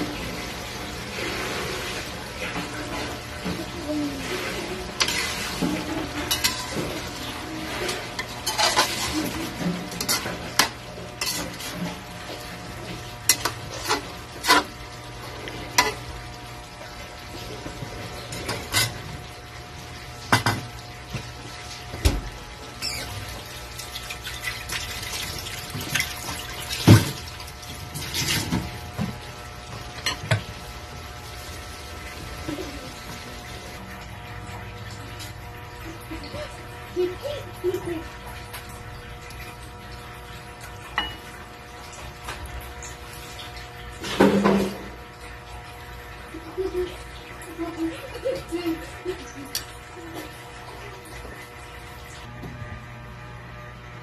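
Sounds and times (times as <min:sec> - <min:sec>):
metal spatula scraping wok: 0:07.7 - 0:11.8, 0:13.3 - 0:14.7.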